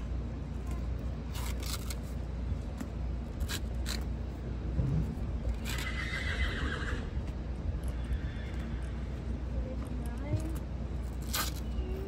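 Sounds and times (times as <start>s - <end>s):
horse neighing: 5.6s - 7.2s, 7.9s - 9.1s.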